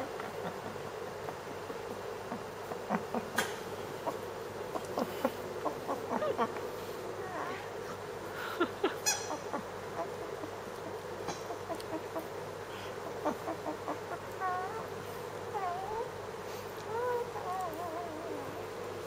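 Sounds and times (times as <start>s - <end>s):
puppy high wavering calls: 13.2s - 16.2s, 16.8s - 18.6s
puppy whining and squeaking: 14.2s - 14.9s, 15.5s - 16.1s, 16.9s - 18.5s.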